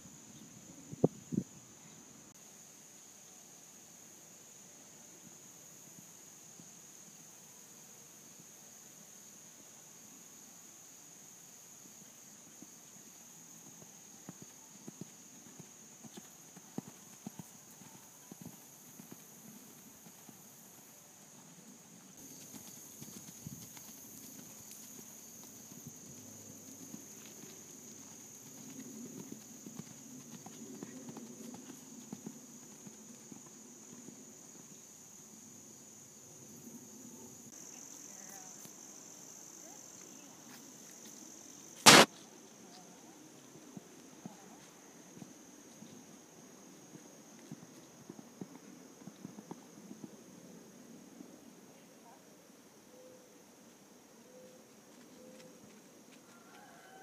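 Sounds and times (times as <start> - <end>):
horse hoofbeats trotting on sand: 13.5 - 34.2, 41.9 - 50.2.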